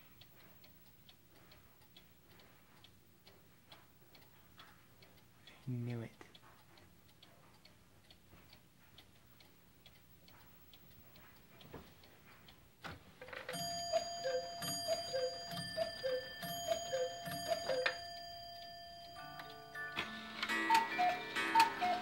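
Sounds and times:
cuckoo calls: 13.2 - 18.3, 19.8 - 22.0
music box tune: 13.4 - 22.0
pendulum ticking: 13.5 - 22.0.

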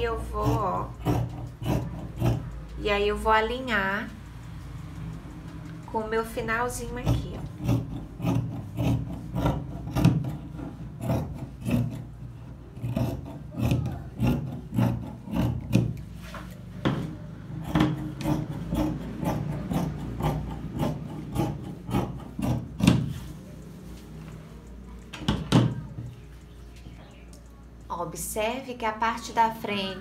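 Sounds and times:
scissors snipping fabric: 0.0 - 2.8, 5.9 - 12.1, 12.8 - 16.6, 17.6 - 23.4.

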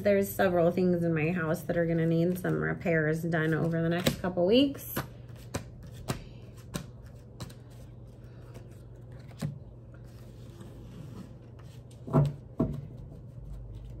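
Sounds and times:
steady low hum: 0.0 - 14.0
cards tapping and flicking: 4.0 - 4.3, 4.9 - 9.6.

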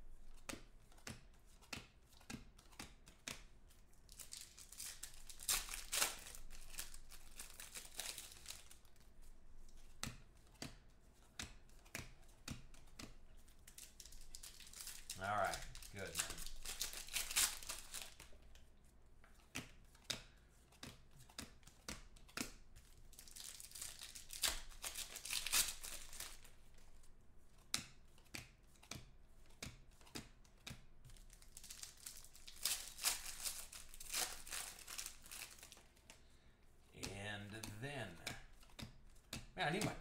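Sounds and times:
cards being handled: 0.0 - 40.0
foil wrappers crinkling: 4.1 - 8.9, 13.7 - 18.3, 23.1 - 26.5, 31.2 - 36.0.

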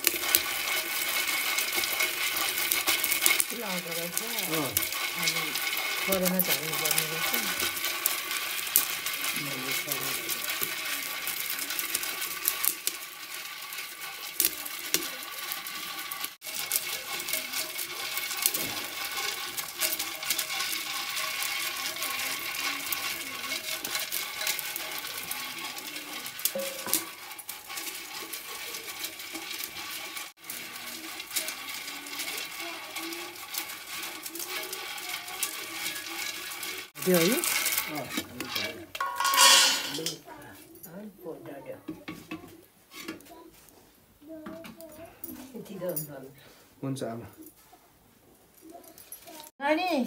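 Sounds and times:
bamboo sticks stirring grains in pot: 0.0 - 47.5, 48.6 - 50.0
wood fire hissing and crackling: 0.0 - 47.5, 48.2 - 50.0.

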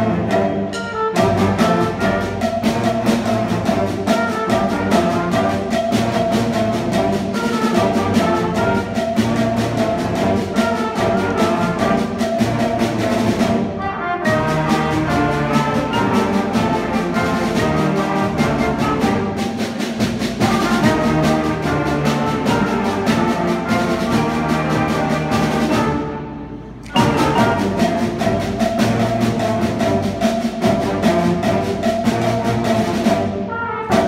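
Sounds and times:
saxophones: 0.0 - 19.6, 20.3 - 34.0
concert band playing: 0.0 - 34.0
percussion strikes: 0.0 - 34.0
trombones: 0.0 - 34.0
trumpets: 0.0 - 34.0
tubas: 0.0 - 34.0.

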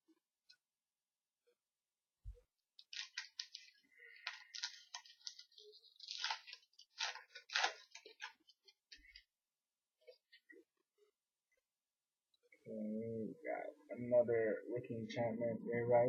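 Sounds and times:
cards rustling: 2.8 - 9.3
wrapper crinkling and tearing: 2.8 - 9.3.

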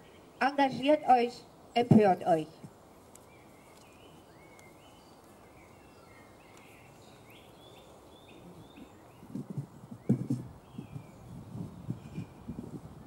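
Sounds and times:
songbirds singing: 0.0 - 13.0
microphone handling thumps: 8.7 - 13.0.

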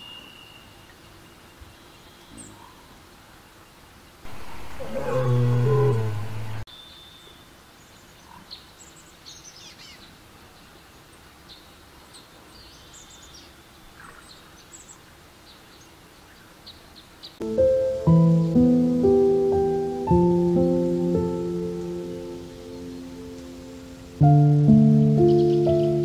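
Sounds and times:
deep animal roar: 4.3 - 6.6
soft piano-like music: 17.4 - 26.0
bird chirps and calls: 24.8 - 26.0.

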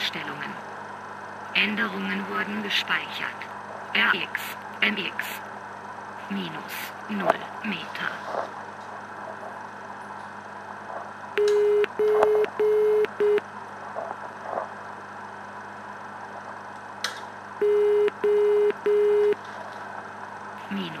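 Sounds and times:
electronic beeps: 11.4 - 13.4, 17.6 - 19.4.

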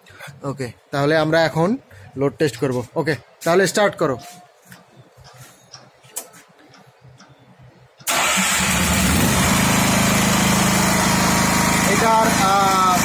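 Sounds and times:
generator engine running: 8.1 - 13.0.

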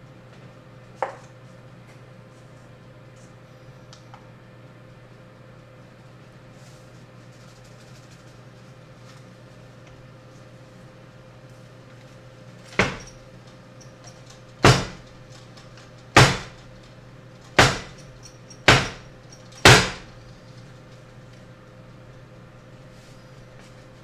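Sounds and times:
sharp wooden knocks: 12.8 - 13.1, 14.6 - 15.2, 16.2 - 16.7, 17.6 - 18.0, 18.6 - 20.1.

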